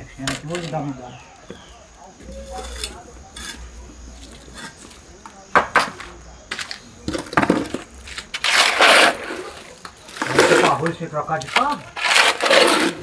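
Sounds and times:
shovel scraping sand: 2.3 - 5.0, 8.0 - 13.0.

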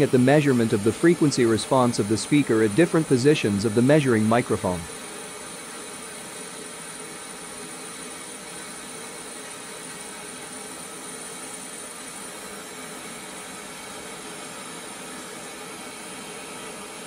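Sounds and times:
test noise hiss from speaker: 0.0 - 5.0.

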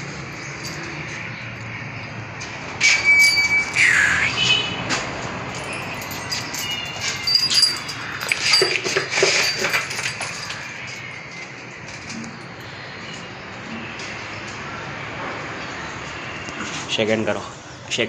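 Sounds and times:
metal chain clinking: 0.2 - 1.8, 2.9 - 3.8, 5.4 - 12.8.

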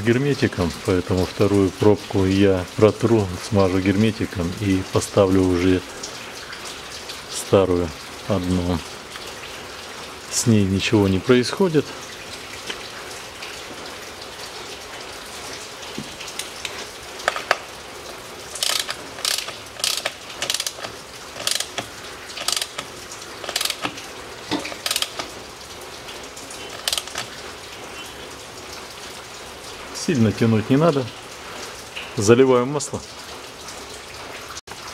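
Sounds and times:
ratchet wrench clicking: 18.6 - 21.8, 22.4 - 23.9, 24.7 - 25.3, 26.8 - 27.3.

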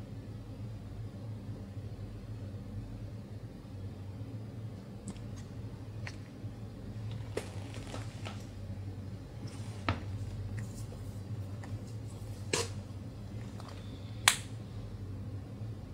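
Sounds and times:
low steady hum: 0.0 - 15.9.

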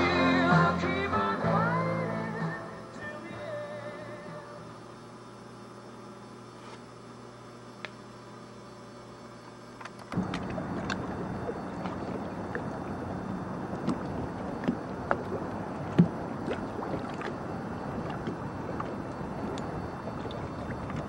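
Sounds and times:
low steady hum: 0.0 - 21.0
small clicks and splashes: 9.8 - 13.1, 13.7 - 21.0
wind: 9.8 - 21.0
choppy open water: 10.0 - 21.0.

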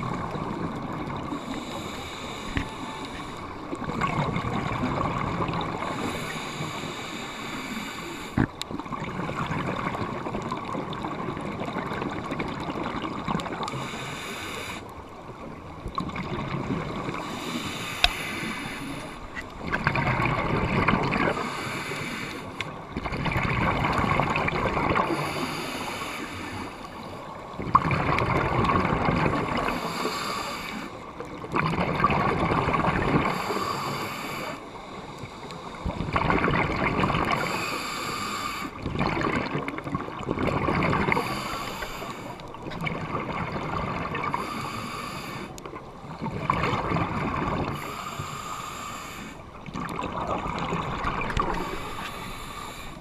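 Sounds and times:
diver breathing through regulator: 1.3 - 3.7, 5.8 - 8.5, 13.6 - 14.9, 17.0 - 20.3, 21.2 - 22.8, 25.0 - 27.3, 29.4 - 31.0, 33.2 - 36.0, 37.3 - 38.8, 41.0 - 42.6, 44.2 - 45.7, 47.6 - 49.6, 50.6 - 53.0
exhaled bubbles bursting: 31.5 - 33.3, 35.9 - 37.4, 38.8 - 41.3, 46.1 - 47.8, 49.6 - 52.2.

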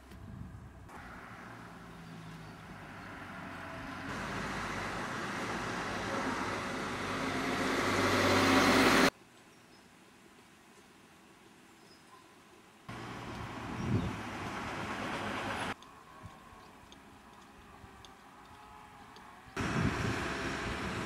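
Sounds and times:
low engine hum: 0.0 - 9.1, 12.9 - 21.0
road vehicle tyre rush: 0.9 - 9.1, 12.9 - 15.8, 19.2 - 21.0.

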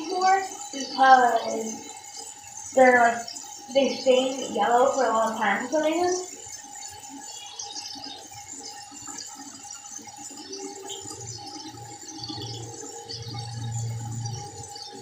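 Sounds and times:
low hum: 10.5 - 15.0.

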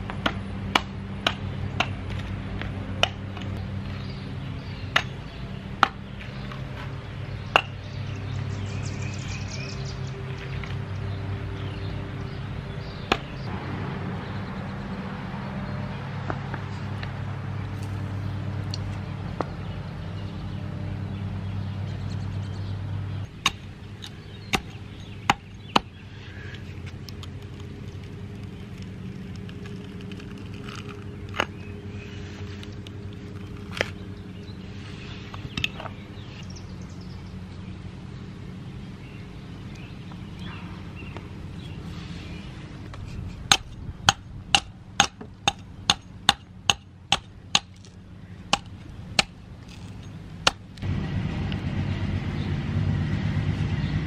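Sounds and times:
steady low hum: 0.0 - 54.0
metal tool chipping into wood: 23.3 - 26.0, 43.5 - 47.9, 48.5 - 50.7.

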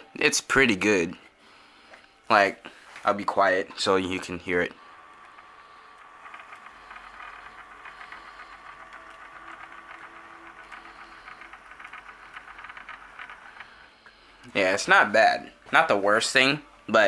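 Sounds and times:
model locomotive gears whirring: 3.8 - 17.0
low hum: 3.9 - 17.0.

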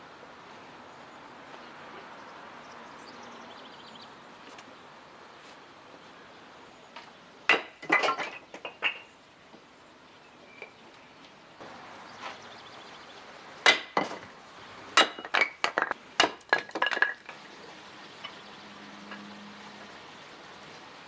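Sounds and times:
hatchet splitting wood: 13.6 - 14.3, 16.2 - 16.8.

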